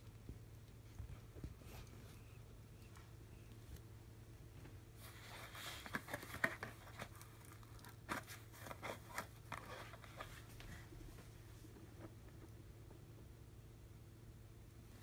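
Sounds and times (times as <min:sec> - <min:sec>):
cardboard rustling and crackling: 0:05.0 - 0:10.9.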